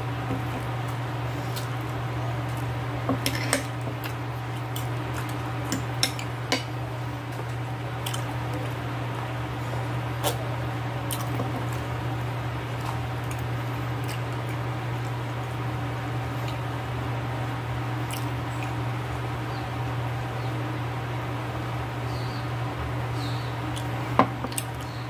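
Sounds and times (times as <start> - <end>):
steady low hum: 0.0 - 25.0
soft chewing: 0.2 - 15.6, 18.0 - 18.8, 23.7 - 25.0.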